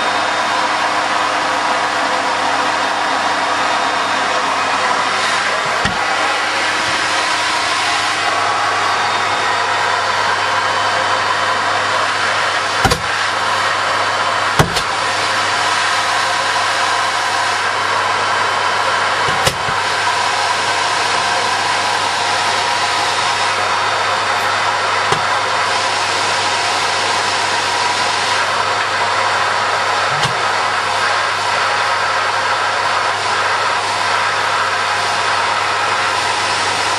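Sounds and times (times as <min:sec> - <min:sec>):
jet engine rushing hiss: 0:04.1 - 0:32.0.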